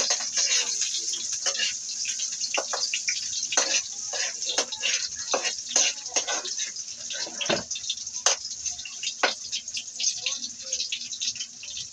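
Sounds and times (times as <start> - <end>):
spatula scraping a pan: 0.0 - 8.6, 9.2 - 9.6
meat sizzling in oil: 0.0 - 11.9.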